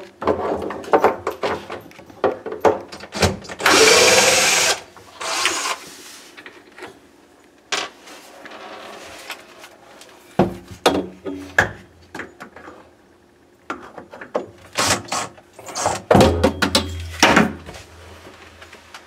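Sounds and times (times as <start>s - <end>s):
cordless drill spinning: 3.6s - 5.8s.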